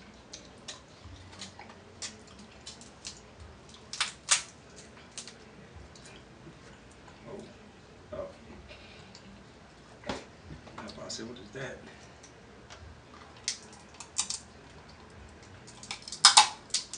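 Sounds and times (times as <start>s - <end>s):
crab shells cracking: 0.3s - 5.4s, 13.4s - 16.9s.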